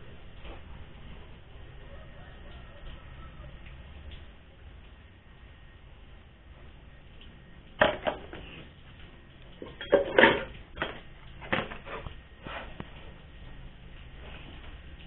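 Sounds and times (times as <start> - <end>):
bowls and dishes clinking: 9.6 - 11.0.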